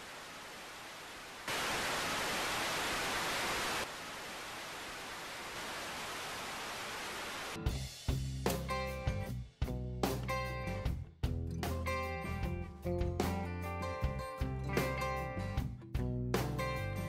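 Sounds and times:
television static hiss: 0.0s - 7.6s.

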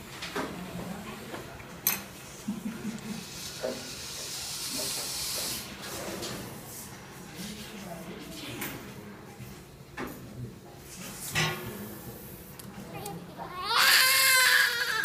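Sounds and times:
hiss of air spray: 3.3s - 5.9s.

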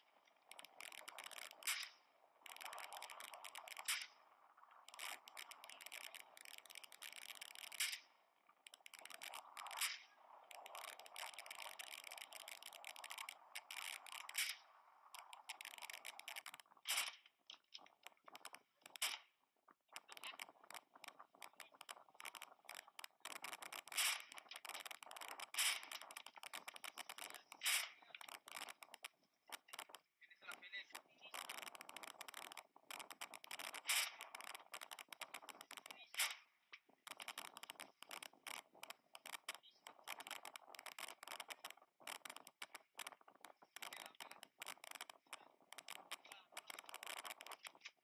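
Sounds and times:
small clicks: 0.0s - 48.0s
loud sharp cracks: 27.6s - 28.0s.

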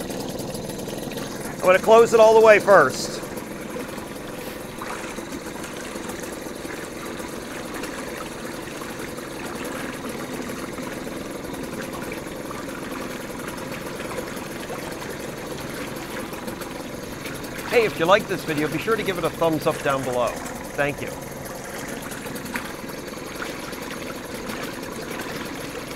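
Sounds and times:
outboard motor idling: 0.0s - 25.9s
water churning and bubbling: 0.0s - 25.9s.

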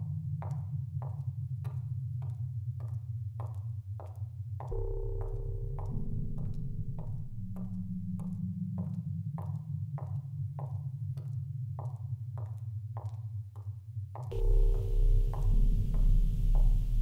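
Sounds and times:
low electronic drone: 4.7s - 9.5s, 14.3s - 17.0s.

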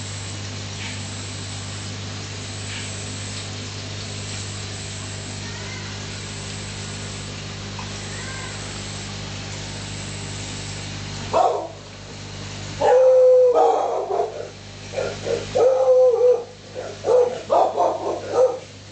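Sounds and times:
animal whining and howling: 12.8s - 18.6s.

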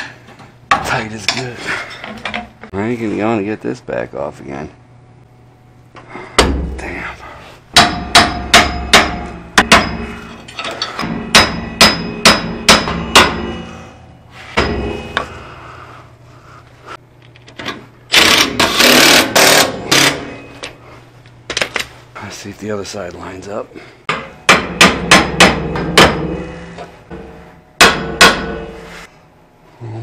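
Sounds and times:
hammer striking metal: 7.7s - 15.4s, 24.1s - 28.9s.

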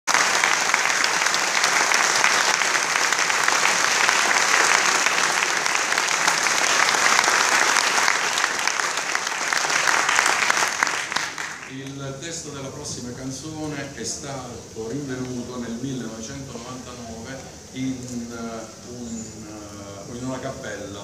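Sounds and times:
audience applause: 0.0s - 12.2s.

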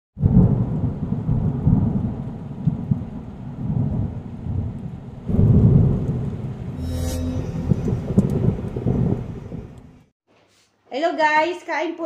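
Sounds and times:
low rumbling thunder: 0.2s - 6.8s, 7.6s - 10.0s.

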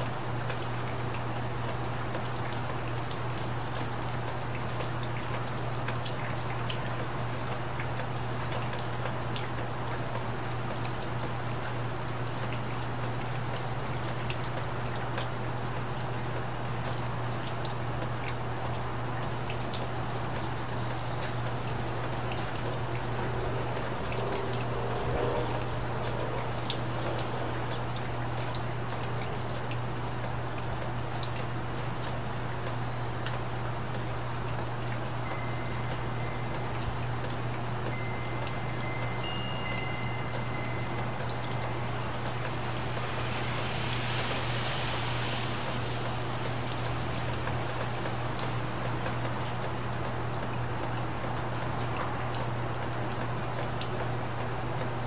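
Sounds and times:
rain falling: 0.0s - 55.0s
water dripping: 0.0s - 55.0s
low hum: 21.2s - 31.6s, 35.0s - 49.9s
short high chirps: 37.9s - 43.0s.

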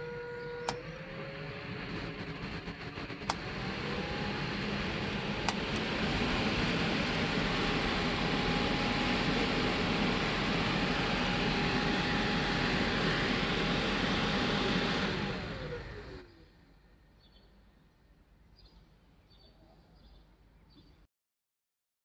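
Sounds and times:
electric fan running: 0.0s - 16.8s
fan spinning down: 0.0s - 17.1s.

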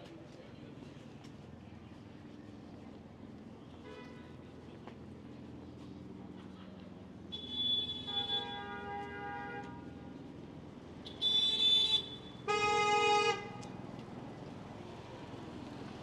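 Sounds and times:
car horns honking: 11.1s - 13.6s.

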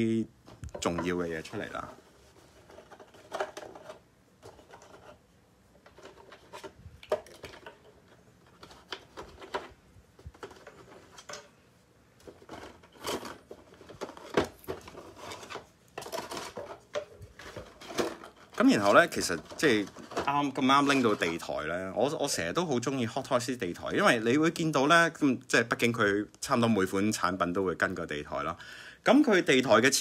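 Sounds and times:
plastic tray being taken apart: 0.5s - 5.2s, 5.8s - 11.6s, 12.2s - 21.5s.

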